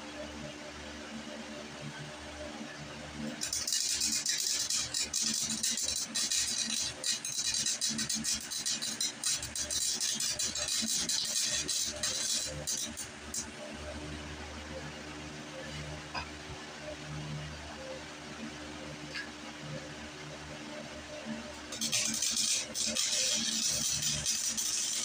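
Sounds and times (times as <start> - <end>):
electric welder crackling: 3.4 - 13.5, 21.5 - 25.0.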